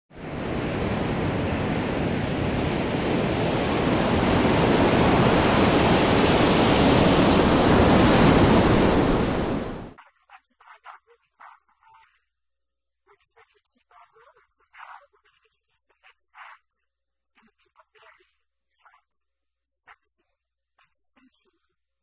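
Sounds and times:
ocean waves breaking: 0.1s - 10.0s.

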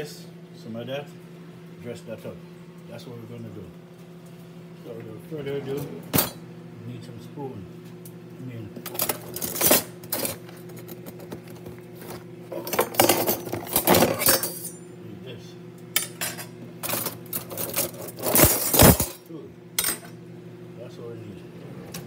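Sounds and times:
cutlery clinking in drawer: 8.9s - 11.0s, 12.6s - 14.8s, 16.0s - 19.2s.

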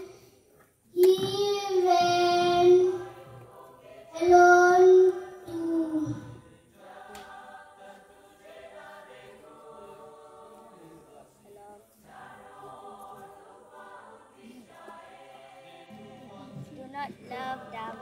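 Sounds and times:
girl singing: 0.9s - 3.2s, 4.1s - 6.4s.

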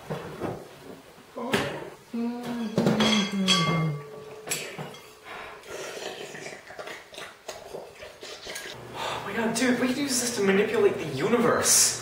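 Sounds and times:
metal spoon clinking bowl: 3.0s - 5.3s
person eating: 5.4s - 8.8s.

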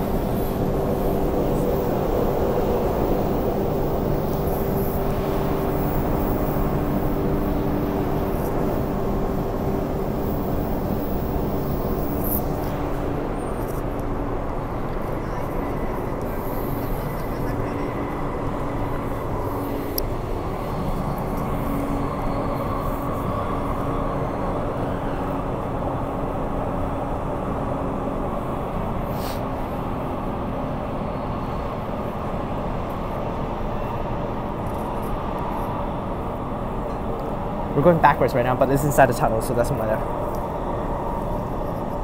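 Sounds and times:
train rumbling: 0.0s - 42.0s.

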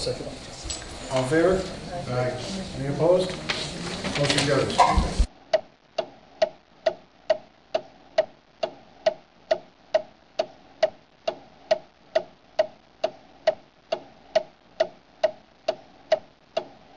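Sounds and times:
clock ticking: 5.5s - 16.9s.

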